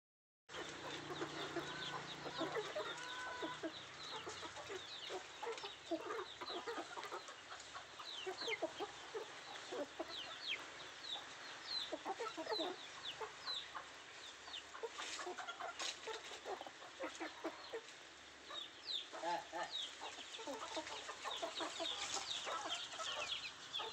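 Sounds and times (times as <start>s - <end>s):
chickens clucking: 0.5s - 23.9s
drawn-out chicken call: 0.5s - 23.9s.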